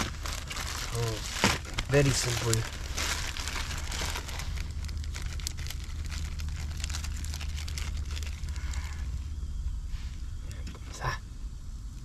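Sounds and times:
fire crackling and popping: 0.0 - 8.8
low rumble: 0.0 - 12.0.

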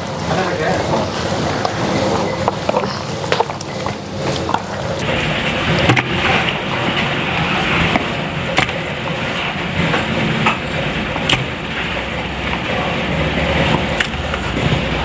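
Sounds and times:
road traffic noise: 0.6 - 15.0
sharp clicks and knocks: 7.9 - 12.7.

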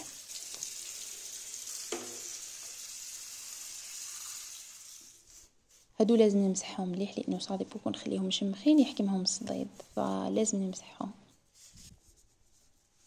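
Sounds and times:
tap water splashing on plastic: 1.8 - 2.8.

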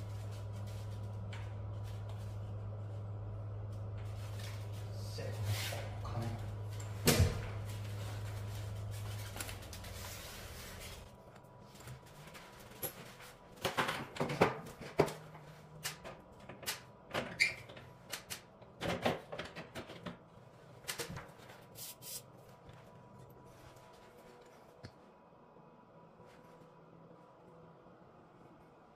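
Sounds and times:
low hum: 0.0 - 17.1.

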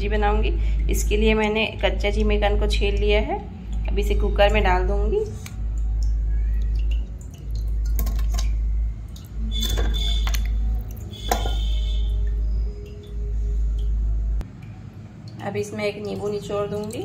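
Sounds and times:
deep steady rumble: 0.0 - 14.5
food knocking against metal pot: 11.2 - 11.7.

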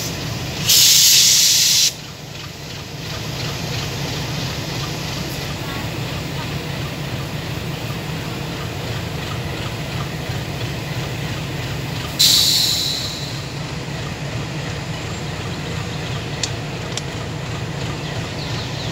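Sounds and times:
sudden loud hiss: 0.0 - 2.0, 12.2 - 13.5
distant diesel train rumble: 0.0 - 18.9.

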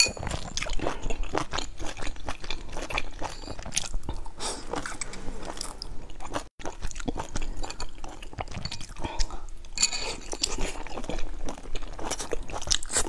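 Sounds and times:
person chewing food: 0.0 - 13.0.

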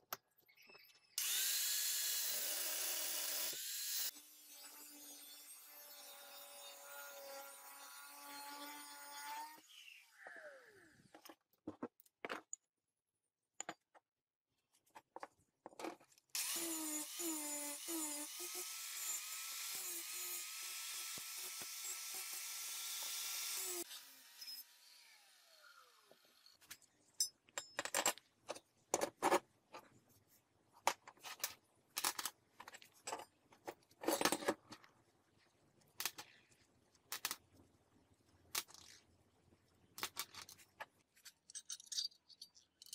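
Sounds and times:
angle grinder grinding steel: 1.2 - 10.8, 16.4 - 26.6
steel bolts and nuts clinking: 41.2 - 42.9.

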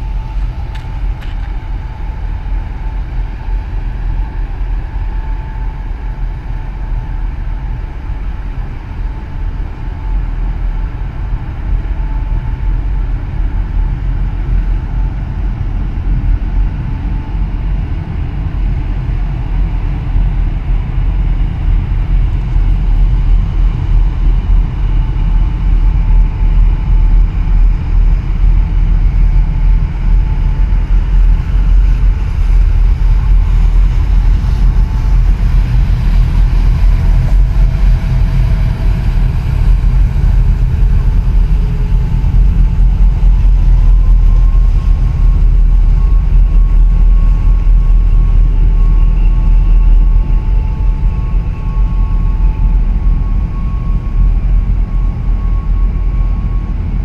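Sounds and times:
faint engine whines: 0.0 - 57.0
wind buffeting microphone: 14.1 - 57.0
ship rumble: 21.5 - 57.0.

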